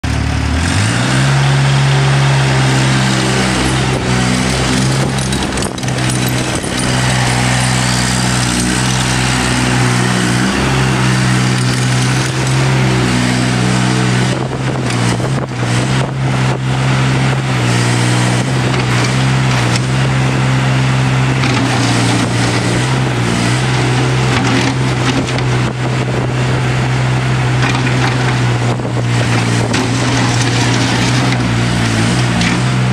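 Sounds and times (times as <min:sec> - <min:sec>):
track loader engine revving: 0:00.0 - 0:32.9
knocks and clatter: 0:03.4 - 0:09.2, 0:21.4 - 0:23.0, 0:24.2 - 0:25.8, 0:27.6 - 0:32.8.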